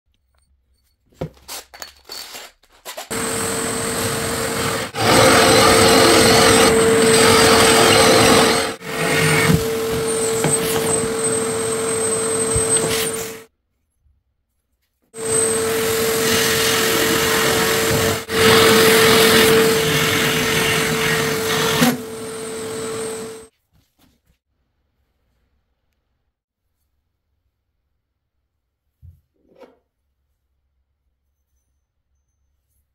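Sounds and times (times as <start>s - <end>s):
drill hole saw cutting board: 3.1s - 13.5s, 15.2s - 23.5s.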